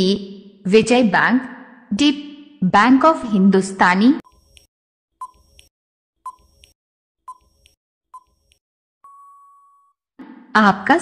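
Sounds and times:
long steady beep: 9.0s - 9.9s.

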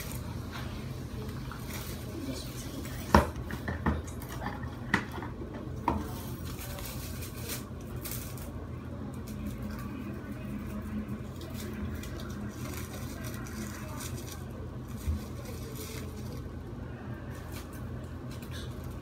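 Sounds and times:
cling wrap crinkling and rustling: 6.1s - 8.6s, 9.2s - 16.6s.

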